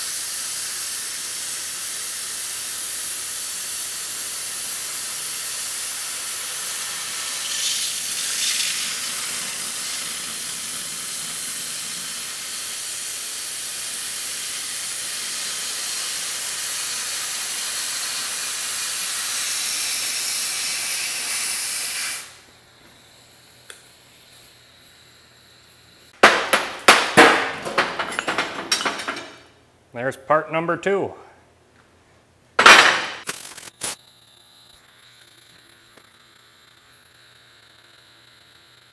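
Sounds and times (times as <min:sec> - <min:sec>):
cutting torch hissing: 0:00.0 - 0:26.2, 0:33.2 - 0:38.9.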